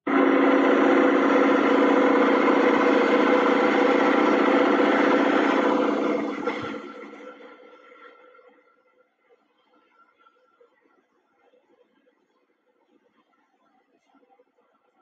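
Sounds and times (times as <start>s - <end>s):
welding machine humming and buzzing: 0.1s - 7.4s.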